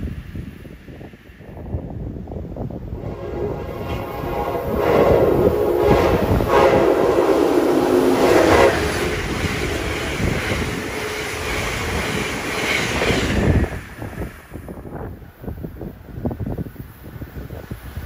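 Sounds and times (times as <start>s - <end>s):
train cars passing at speed: 0.0s - 18.0s
train horn blast: 2.9s - 11.5s.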